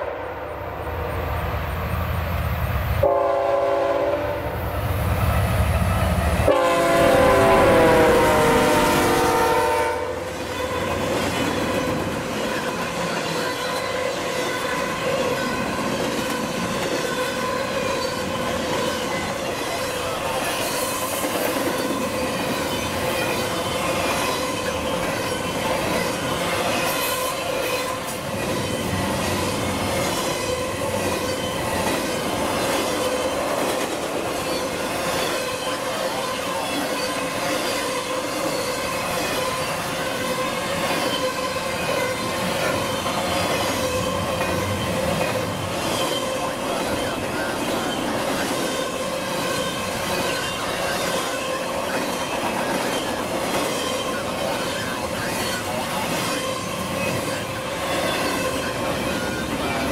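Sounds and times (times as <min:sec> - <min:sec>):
train wheels rumbling on rail: 0:00.6 - 0:59.9
locomotive horn chord: 0:03.0 - 0:04.5, 0:06.4 - 0:10.2
high wheel squeal: 0:34.4 - 0:59.9.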